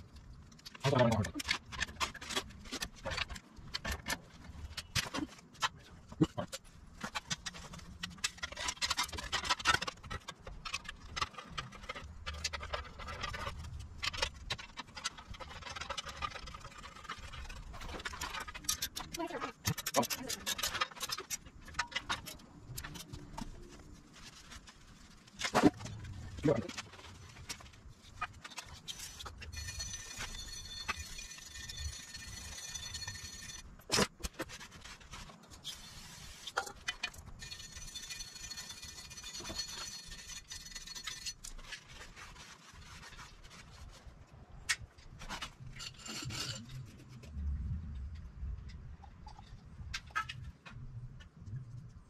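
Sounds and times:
metal car parts scraping: 0:00.1 - 0:47.5.

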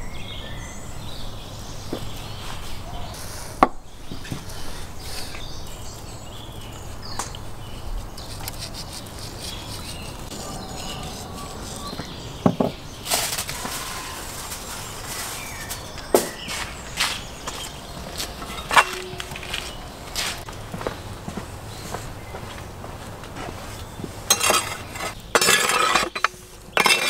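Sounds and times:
faint bird chirps: 0:09.4 - 0:12.9.

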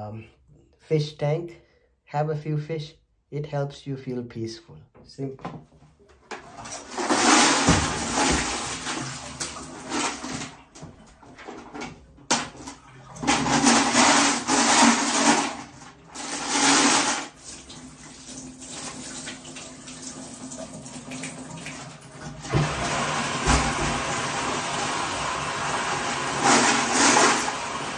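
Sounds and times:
water splashing and pouring: 0:06.5 - 0:24.7
water trickling: 0:17.4 - 0:22.0.

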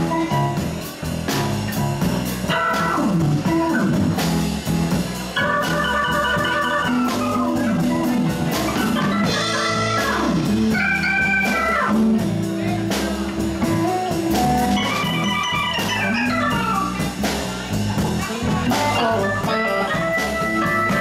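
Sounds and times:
bass guitar: 0:00.0 - 0:21.0
drum kit beat: 0:00.0 - 0:21.0
electric guitar: 0:00.0 - 0:21.0
keyboard chords: 0:00.0 - 0:21.0.

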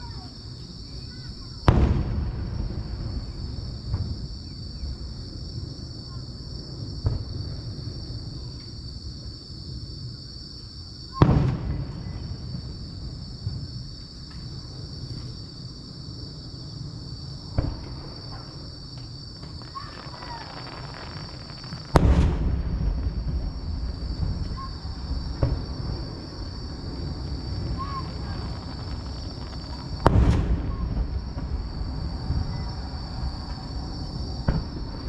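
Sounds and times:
firework shells bursting: 0:17.5 - 0:32.0.

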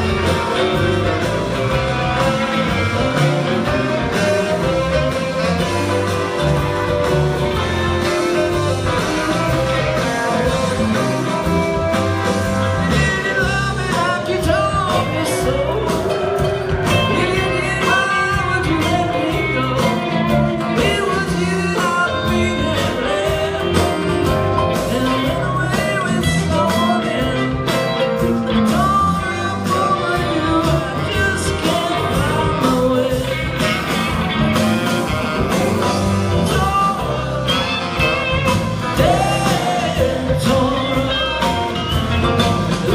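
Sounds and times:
drums: 0:00.0 - 0:42.9
person singing: 0:00.0 - 0:42.9.

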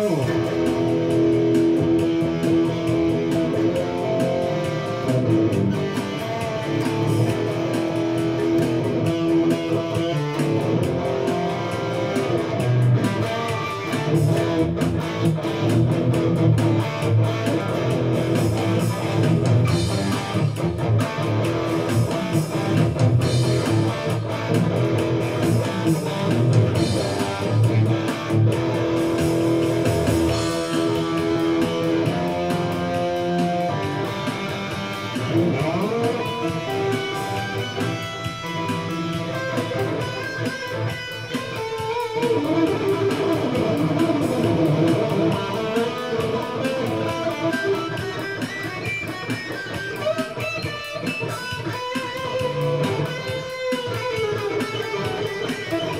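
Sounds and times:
electric guitar playing: 0:00.0 - 0:55.9.

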